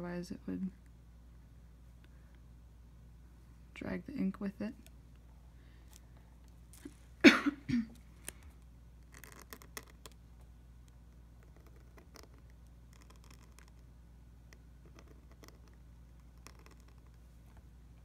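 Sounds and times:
person coughing: 7.2 - 8.0
pen nib scratching on paper: 8.2 - 10.2, 10.8 - 13.9, 14.5 - 17.3.

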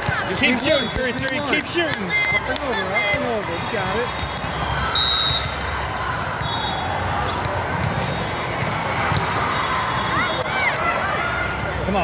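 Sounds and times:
crowd chatter: 0.0 - 12.0
referee's whistle: 0.4 - 1.3, 2.1 - 5.7, 6.4 - 7.4
faint whistle: 4.2 - 5.6, 6.4 - 6.9
volleyballs thudding: 5.3 - 9.5.

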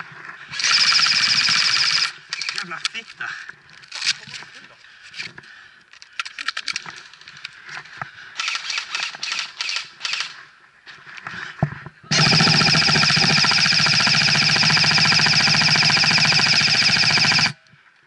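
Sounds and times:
sharp clicks: 0.9 - 3.1, 8.4 - 10.4, 12.1 - 17.6
steady buzzing tone: 12.1 - 17.6.

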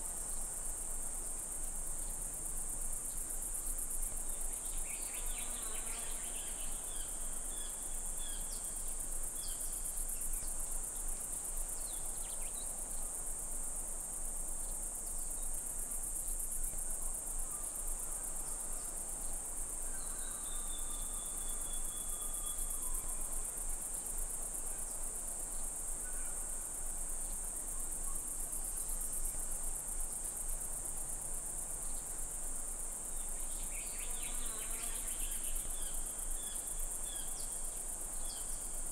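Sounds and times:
insect chorus trilling: 0.3 - 13.2, 14.6 - 38.9.

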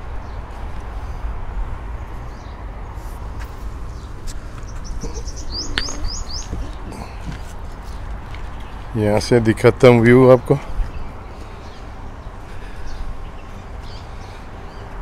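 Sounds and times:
wind rumble on microphone: 0.0 - 9.0, 10.6 - 15.0
small bird chirping: 3.9 - 7.1.

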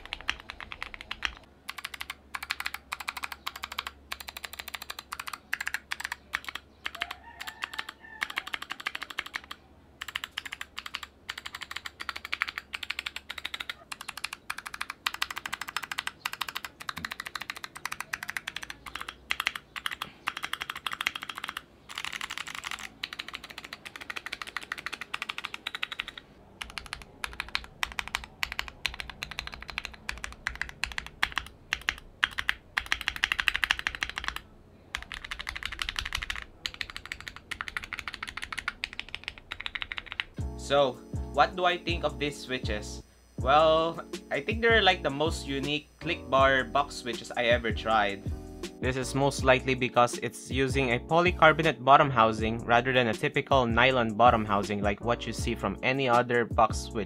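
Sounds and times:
typing on clicky mechanical keyboard: 0.0 - 40.4.

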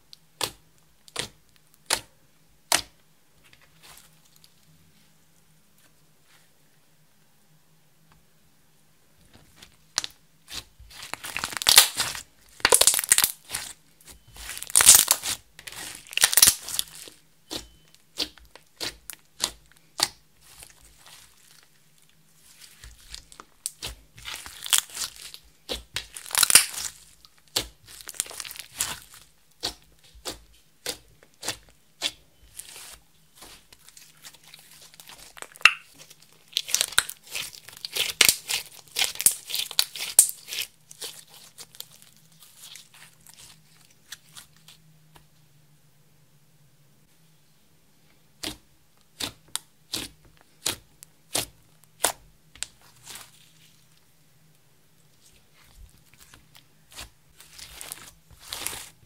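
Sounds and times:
slime squeezed by hand crackling: 10.0 - 21.6, 22.4 - 44.7.

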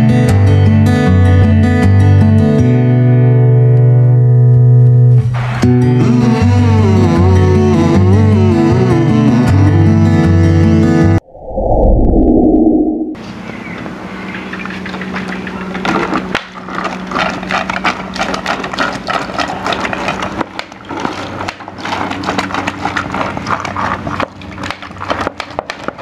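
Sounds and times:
low hum: 6.0 - 25.1
water splashing onto seedlings: 15.9 - 26.0.

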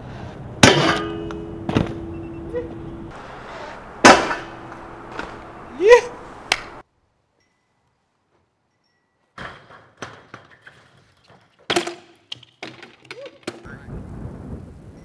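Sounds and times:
bike crashing on ground: 0.6 - 2.1, 3.1 - 5.7
metal clank: 0.6 - 5.6
bike knocks and thumps: 0.6 - 5.7, 9.4 - 13.7.

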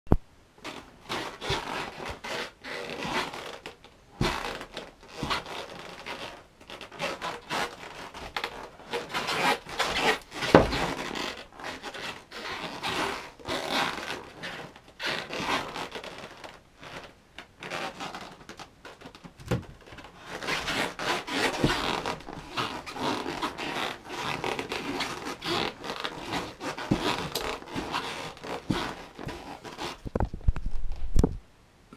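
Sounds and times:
board knocking on floor: 10.5 - 10.8
snowboard scraping on carpet: 20.2 - 30.1.

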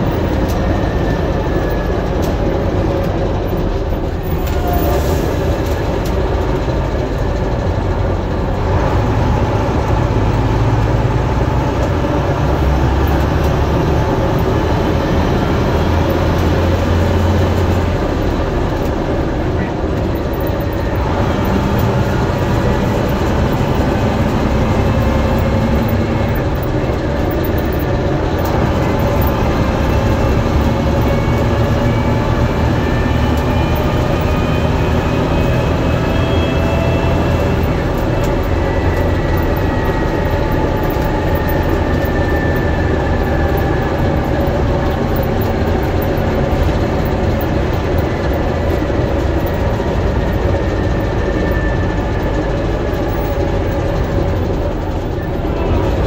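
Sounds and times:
bus diesel engine droning: 0.0 - 56.0
rising whine: 8.1 - 56.0.

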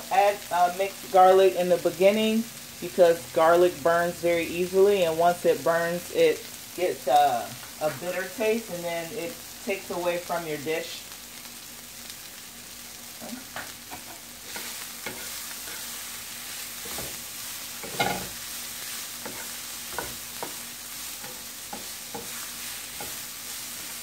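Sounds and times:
vegetables sizzling in oil: 0.0 - 24.0
wooden spatula knocking pan: 19.2 - 20.6.

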